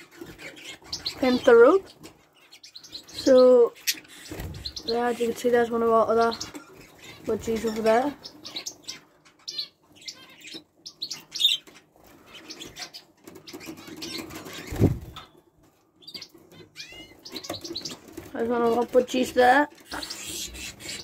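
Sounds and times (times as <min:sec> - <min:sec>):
small birds chirping: 0:00.0 - 0:21.0
wings flapping: 0:11.9 - 0:15.3.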